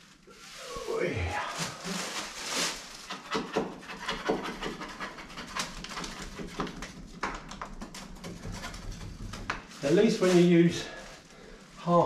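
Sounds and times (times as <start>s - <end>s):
wet brush swishing on plaster: 9.6s - 11.8s.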